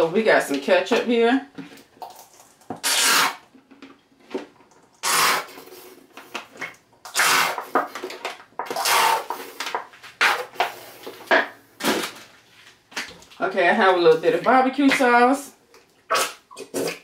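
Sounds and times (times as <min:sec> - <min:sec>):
squeeze bottle sputtering: 0:05.0 - 0:05.7.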